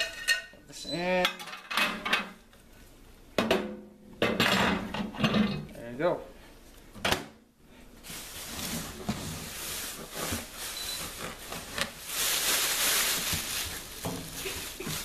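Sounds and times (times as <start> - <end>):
plastic bag crinkling: 8.0 - 15.0.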